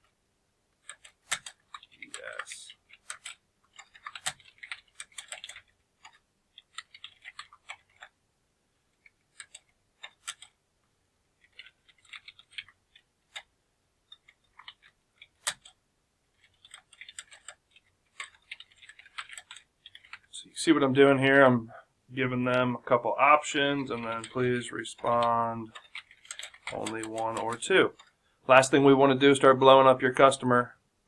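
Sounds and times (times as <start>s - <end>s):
keyboard typing: 0.8s - 8.2s, 8.9s - 10.6s, 11.4s - 20.3s, 23.7s - 28.2s.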